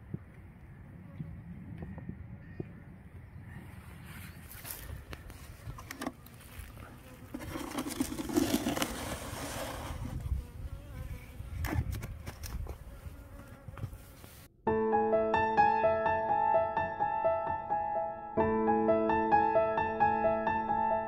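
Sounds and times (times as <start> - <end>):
honeybees buzzing: 6.0 - 14.5.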